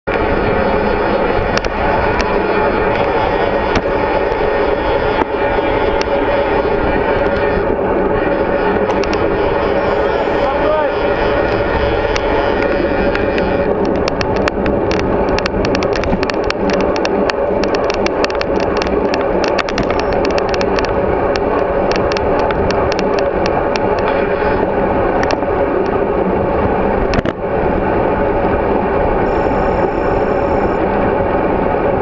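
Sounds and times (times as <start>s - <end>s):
wind and road noise: 0.0s - 32.0s
sharp clicks and rattles: 1.1s - 6.2s, 8.7s - 24.6s, 25.2s - 26.0s
high-pitched tone: 9.8s - 10.6s, 19.8s - 20.2s, 29.3s - 30.8s.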